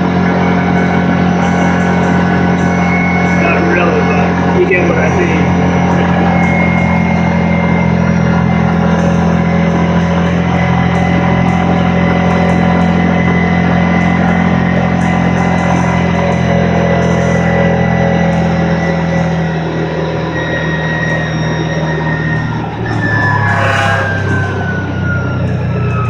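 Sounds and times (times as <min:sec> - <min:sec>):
atv engine droning: 0:00.0 - 0:26.0.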